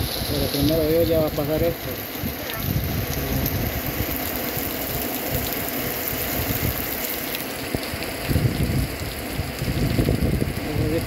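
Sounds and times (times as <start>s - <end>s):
heavy rain falling: 0.0s - 11.0s
rumbling wind: 0.0s - 11.0s.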